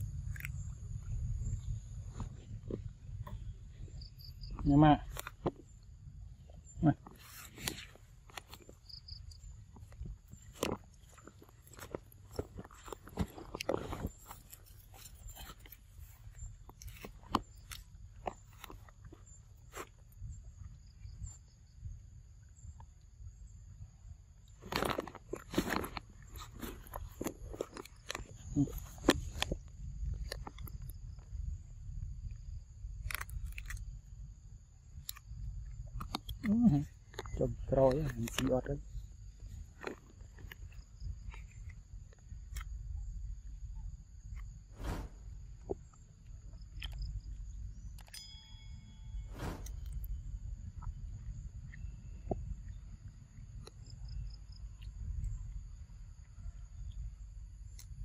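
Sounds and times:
short crunches: 0.0 - 5.8, 6.5 - 21.4, 24.4 - 31.4, 33.0 - 34.0, 35.0 - 42.8, 44.3 - 48.4, 49.1 - 51.0
wind rumble on microphone: 0.0 - 48.1, 48.7 - 58.0
insects droning: 0.0 - 58.0
high insect drone: 40.7 - 58.0.

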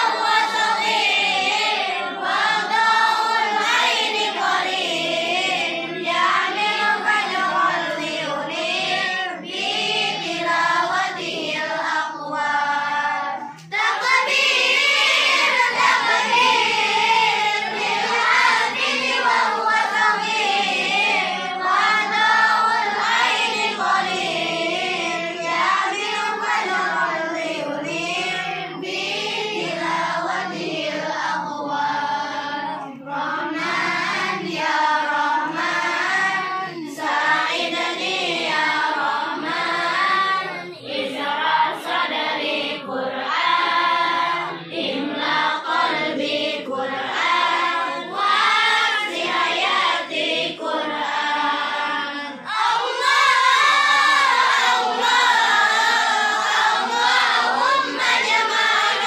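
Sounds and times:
children singing in chorus: 0.0 - 59.0.

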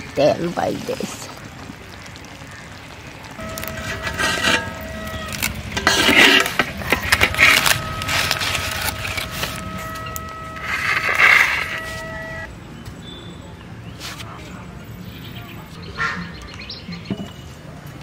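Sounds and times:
leaf rustling and scraping on metal: 3.4 - 12.5, 14.0 - 14.4.

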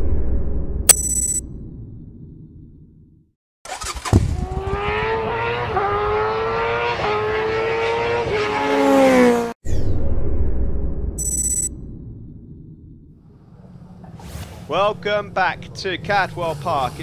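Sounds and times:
low rumble: 0.0 - 3.3, 9.7 - 14.7
racing motorcycle engine accelerating: 3.7 - 9.6.

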